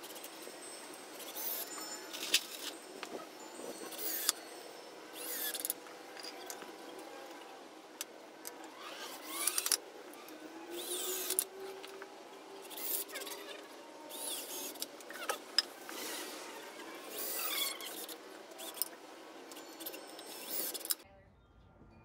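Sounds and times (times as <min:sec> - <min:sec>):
cordless drill driving screws: 0:01.2 - 0:03.2, 0:03.9 - 0:04.4, 0:05.2 - 0:06.6, 0:08.7 - 0:11.8, 0:12.6 - 0:21.0.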